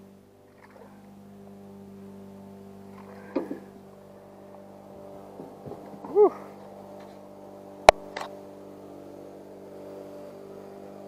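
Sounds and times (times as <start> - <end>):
steady low hum: 0.0 - 11.0
person grunting: 6.1 - 6.6.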